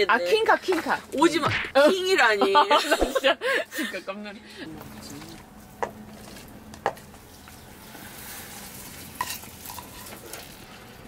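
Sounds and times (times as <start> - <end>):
food sizzling in pot: 7.1 - 11.0.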